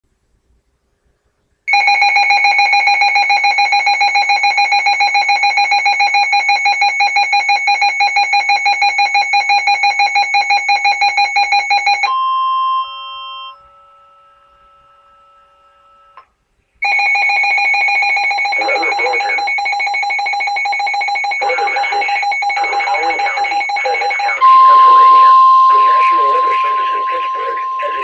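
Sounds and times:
rapid electronic alarm beeps: 0:01.7 - 0:12.1, 0:16.8 - 0:28.0
steady alert tones: 0:16.8 - 0:28.0.

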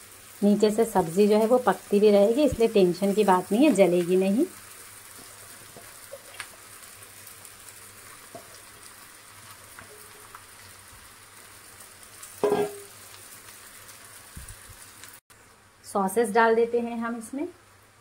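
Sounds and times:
food sizzling in pan: 0:00.0 - 0:18.0
light taps on pan: 0:12.4 - 0:12.9.

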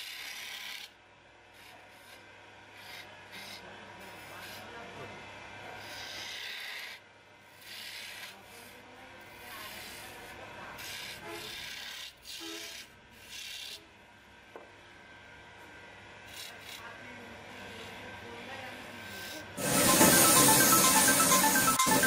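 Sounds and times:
lathe tool scraping wood: 0:05.8 - 0:07.0.

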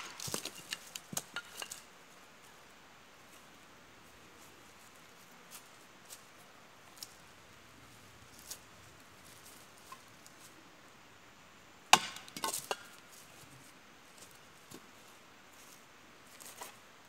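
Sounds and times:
sharp woody crack: 0:00.0 - 0:01.6, 0:11.9 - 0:12.9.

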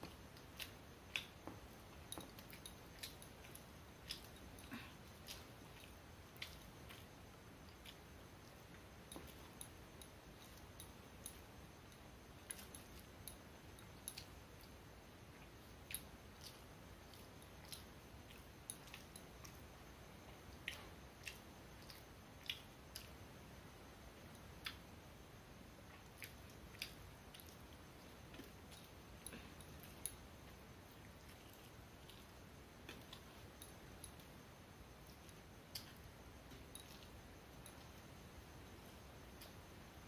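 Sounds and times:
mouth chewing: 0:00.0 - 0:23.2, 0:25.9 - 0:34.4.

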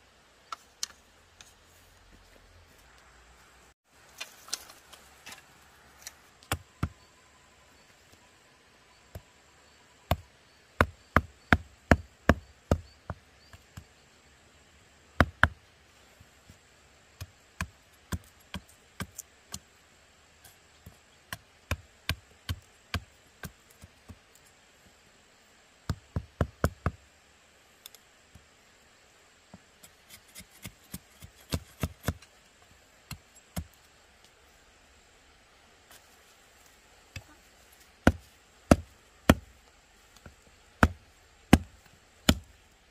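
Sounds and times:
machete chopping bamboo: 0:10.8 - 0:12.9, 0:21.3 - 0:23.6, 0:30.1 - 0:32.3, 0:38.0 - 0:39.6, 0:40.2 - 0:42.5.

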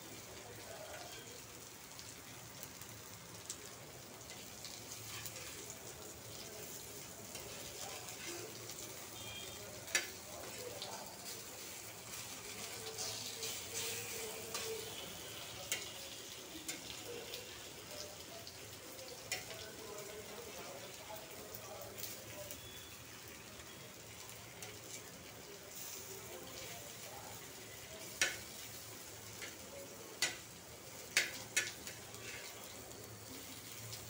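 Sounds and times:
rolls sizzling in oil: 0:00.0 - 0:34.0
metal spatula scraping pan: 0:05.0 - 0:05.7.

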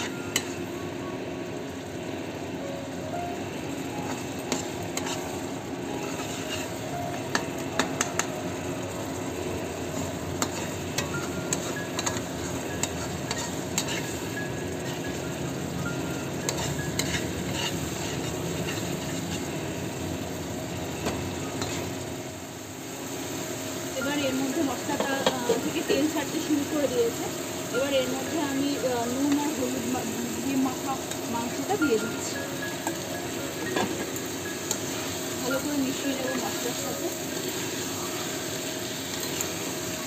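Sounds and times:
masala sizzling in a pan: 0:00.0 - 0:40.0
spoon stirring and scraping: 0:04.5 - 0:05.3, 0:06.0 - 0:06.8
spoon tapping on pan: 0:07.3 - 0:08.4.

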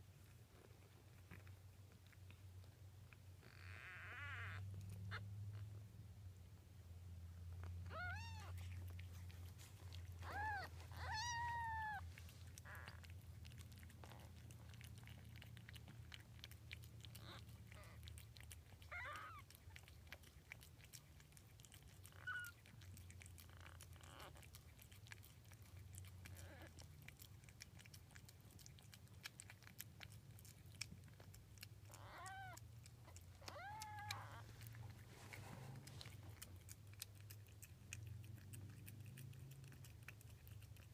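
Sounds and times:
kittens mewing: 0:03.4 - 0:05.7, 0:07.8 - 0:09.1, 0:09.9 - 0:13.1, 0:17.0 - 0:18.1, 0:18.7 - 0:19.8, 0:31.8 - 0:34.8.

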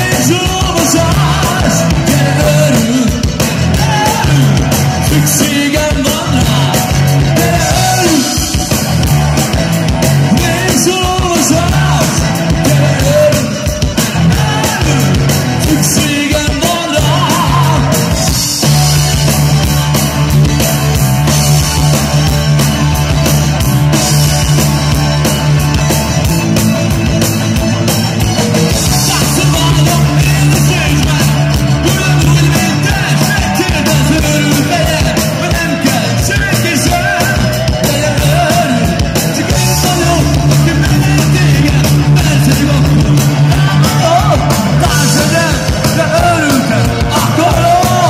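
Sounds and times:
man singing: 0:00.0 - 0:08.9, 0:10.2 - 0:18.6, 0:28.7 - 0:48.0
live rock band: 0:00.0 - 0:48.0.

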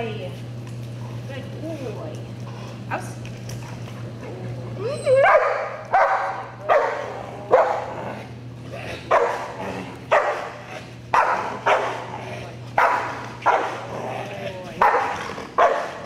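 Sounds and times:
dog barking with echo: 0:05.2 - 0:07.9, 0:09.1 - 0:12.1, 0:12.8 - 0:13.8, 0:14.8 - 0:16.0.

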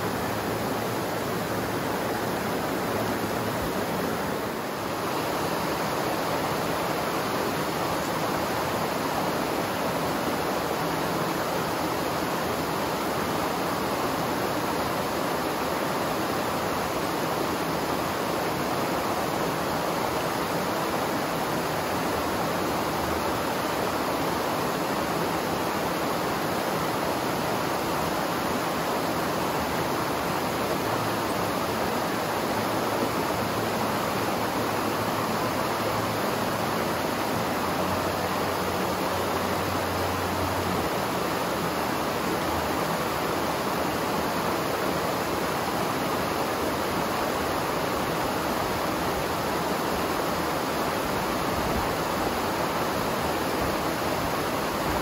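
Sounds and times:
rushing river water: 0:00.0 - 0:55.0.

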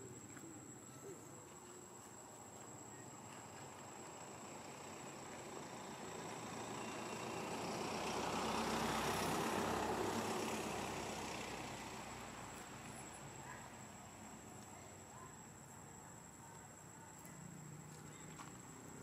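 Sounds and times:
vehicle passing by: 0:04.2 - 0:14.6.

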